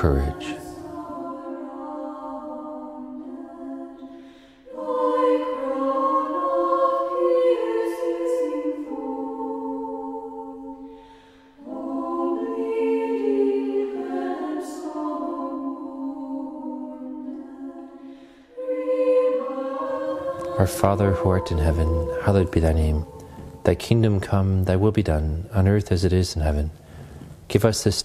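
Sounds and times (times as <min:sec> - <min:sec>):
choir singing unaccompanied: 0:00.0 - 0:26.6.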